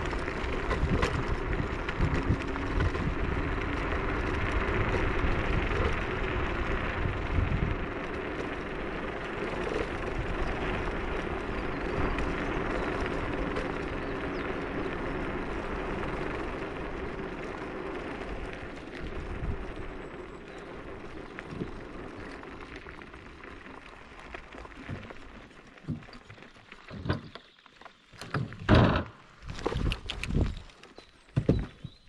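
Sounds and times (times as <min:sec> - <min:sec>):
electric scooter rolling: 0:00.0 - 0:32.0
knocks and thumps: 0:28.2 - 0:29.2, 0:31.4 - 0:32.0.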